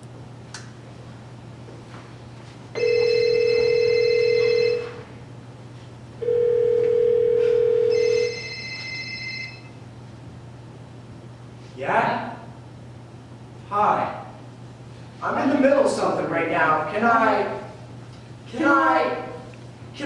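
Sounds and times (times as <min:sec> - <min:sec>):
telephone ringing: 0:02.8 - 0:05.1, 0:06.2 - 0:09.8.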